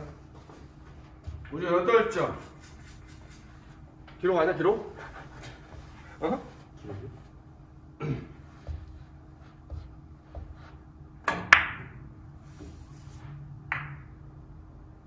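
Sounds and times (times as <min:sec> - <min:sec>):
billiard balls clacking: 0:13.7 - 0:14.2.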